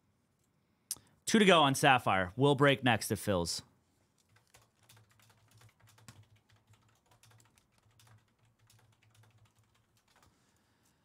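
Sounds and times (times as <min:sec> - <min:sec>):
faint keyboard typing: 0:04.1 - 0:11.0.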